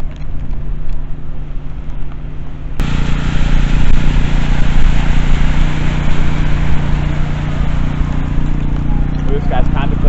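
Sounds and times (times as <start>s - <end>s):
car engine running: 1.3s - 10.0s
loud even hiss: 2.8s - 8.8s.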